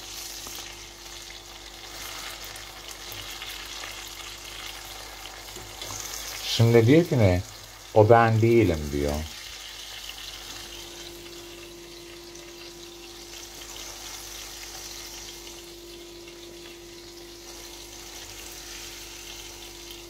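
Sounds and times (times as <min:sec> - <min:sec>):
tomatoes sizzling in a pan: 0:00.0 - 0:20.0
low hum: 0:10.4 - 0:20.0.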